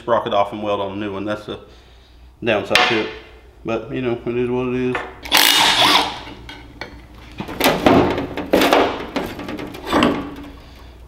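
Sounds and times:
impact driver burst: 0:05.2 - 0:06.4
metal clanking and scraping: 0:05.7 - 0:11.0.

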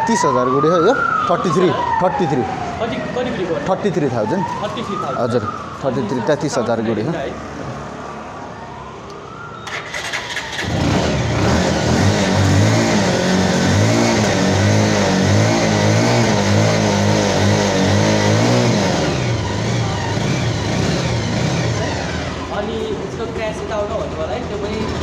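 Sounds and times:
motorcycle engine revving: 0:09.4 - 0:25.0.

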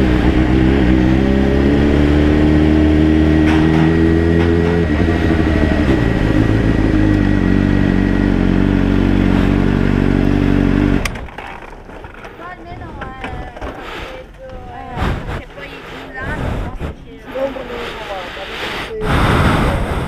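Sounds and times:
motorcycle engine: 0:00.0 - 0:14.3.

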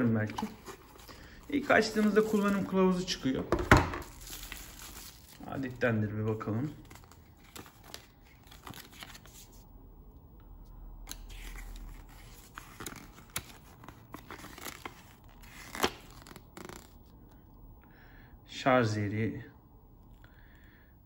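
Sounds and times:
paper rustling and crinkling: 0:00.2 - 0:03.2, 0:03.9 - 0:05.8, 0:06.6 - 0:09.6, 0:11.1 - 0:17.1.

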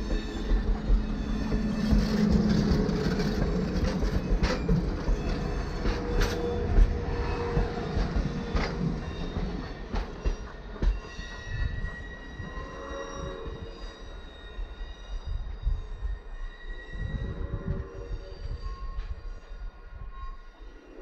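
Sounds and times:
train wheels clicking over rail joints: 0:00.0 - 0:12.5
wheel squeal: 0:00.0 - 0:21.0.

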